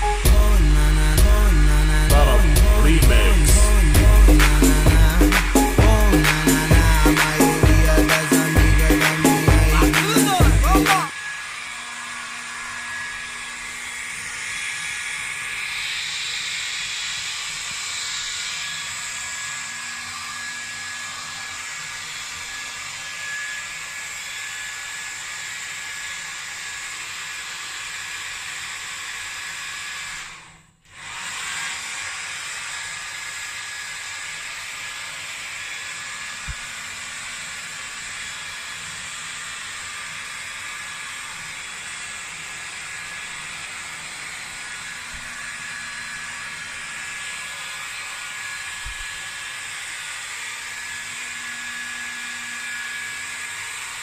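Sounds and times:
hair dryer blowing: 0.0 - 54.0.

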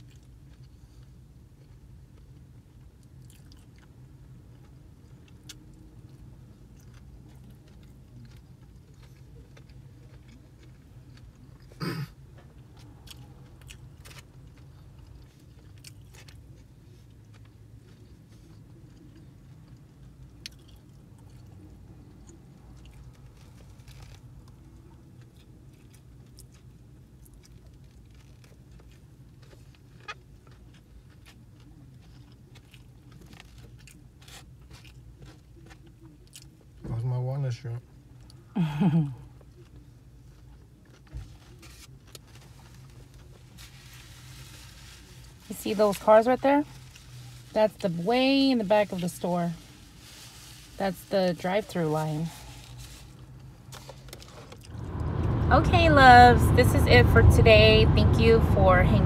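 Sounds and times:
person chewing: 3.0 - 11.8, 12.8 - 24.2, 52.4 - 54.8
low hum: 54.4 - 59.0.

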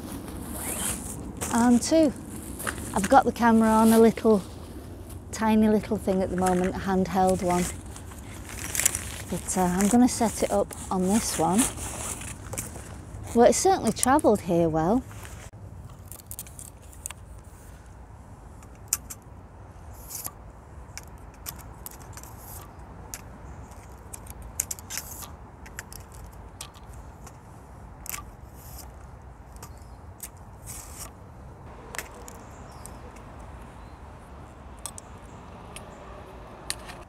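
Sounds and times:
tripod clicks and metallic rattles: 6.0 - 11.3, 15.8 - 17.2, 18.6 - 19.3, 20.0 - 31.2, 34.7 - 36.0.

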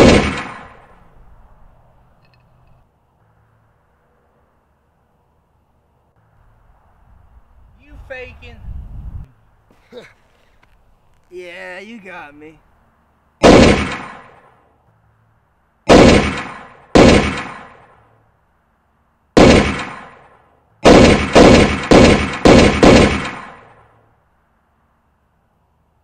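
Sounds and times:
gunshots ringing out: 0.0 - 1.0, 13.4 - 14.6, 15.9 - 18.1, 19.4 - 23.9.

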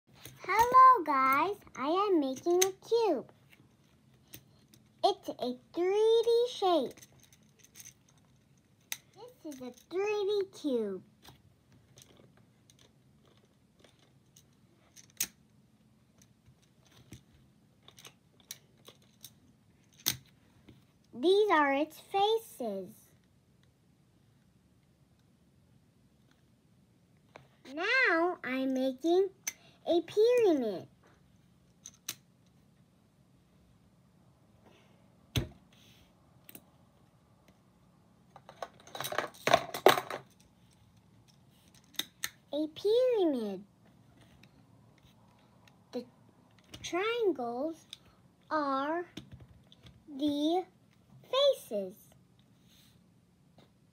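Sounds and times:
faint handling noise: 11.1 - 21.2, 43.8 - 46.9.

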